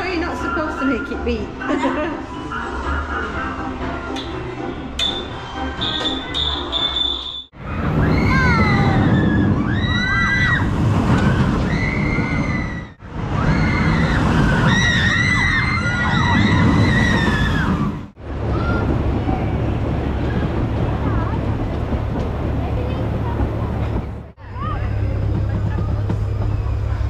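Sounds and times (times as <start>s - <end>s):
roller coaster rumbling on track: 5.9s - 27.0s.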